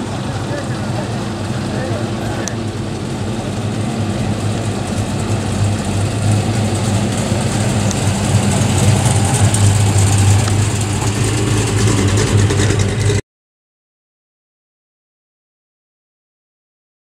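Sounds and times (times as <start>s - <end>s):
car engine running: 0.0s - 13.2s.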